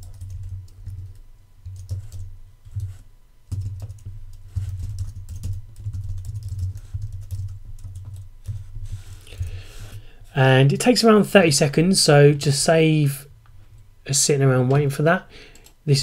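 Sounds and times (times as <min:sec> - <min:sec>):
computer keyboard typing: 0:00.0 - 0:08.7.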